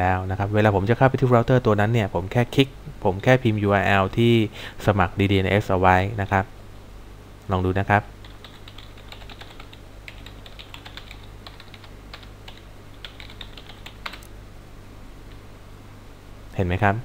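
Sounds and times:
steady low hum: 0.0s - 17.0s
keyboard typing: 8.2s - 14.3s.

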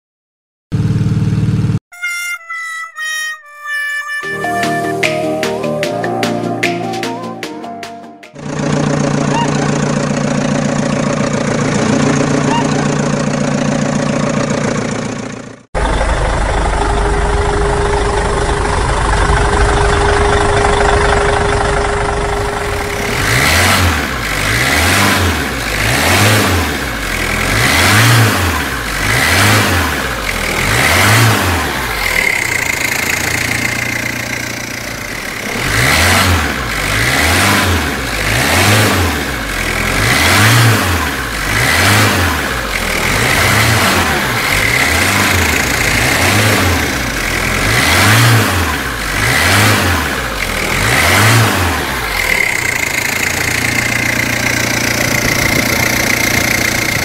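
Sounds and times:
engine revving: 8.4s - 15.2s, 15.8s - 57.0s
heavy vehicle engine rumble: 8.4s - 24.6s, 51.8s - 57.0s.

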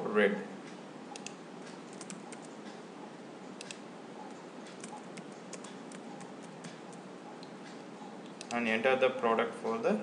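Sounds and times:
steady low hiss: 0.0s - 10.0s.

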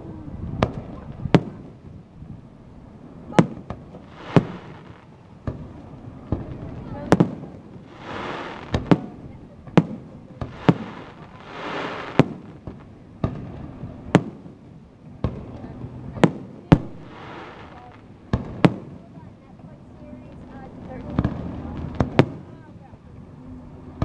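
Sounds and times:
firework shells bursting: 3.7s - 5.0s, 10.4s - 13.5s.

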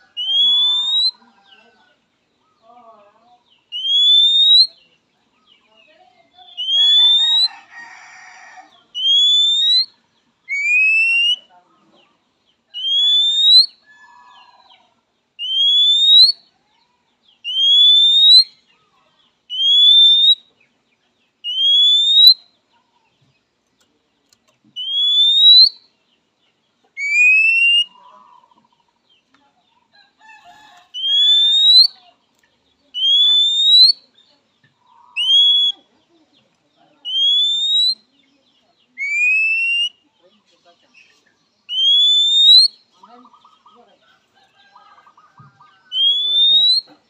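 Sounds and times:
bird whistled call: 0.2s - 1.2s, 3.7s - 4.8s, 6.5s - 7.5s, 9.0s - 11.5s, 12.8s - 13.9s, 15.4s - 16.5s, 17.4s - 18.6s, 19.5s - 20.5s, 21.4s - 22.5s, 24.8s - 25.9s, 27.0s - 28.0s, 31.0s - 32.0s, 33.0s - 34.1s, 35.1s - 35.8s, 37.1s - 38.1s, 39.0s - 40.0s, 41.7s - 42.8s, 45.8s - 46.9s.

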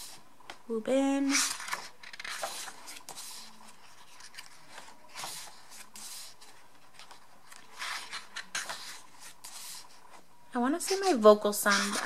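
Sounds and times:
paper pages rustling: 1.2s - 12.0s.

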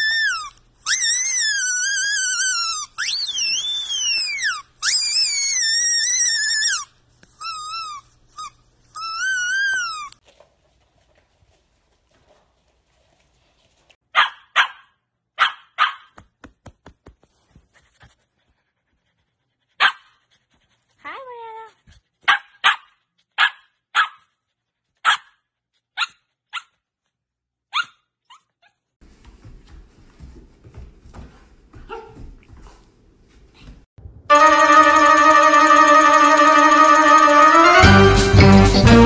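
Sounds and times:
dog barking: 14.1s - 16.2s, 19.8s - 20.1s, 22.2s - 24.3s, 25.0s - 26.7s, 31.8s - 32.3s.

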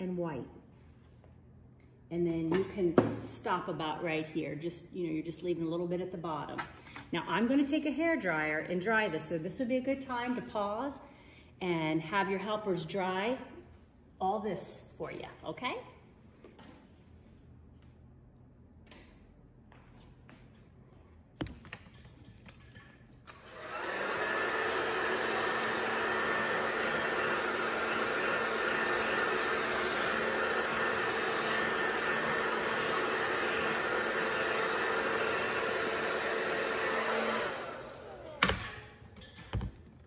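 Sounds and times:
hair dryer running: 23.3s - 38.8s.

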